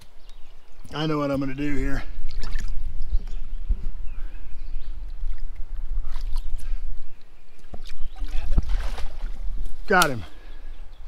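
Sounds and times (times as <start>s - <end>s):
river water splashing: 2.1s - 3.0s, 5.0s - 6.7s, 7.4s - 10.6s
fish thrashing in water: 2.3s - 2.9s, 7.8s - 9.6s.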